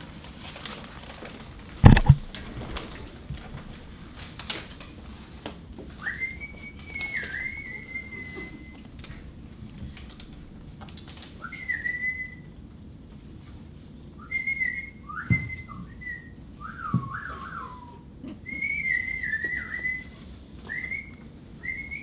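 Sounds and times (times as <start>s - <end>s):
birdlike whistling and trills: 14.2s - 22.0s.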